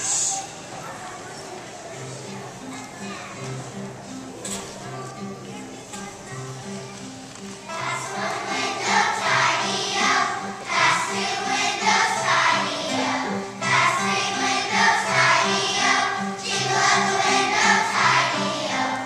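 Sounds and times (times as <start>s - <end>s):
children's choir singing: 7.6s - 19.0s.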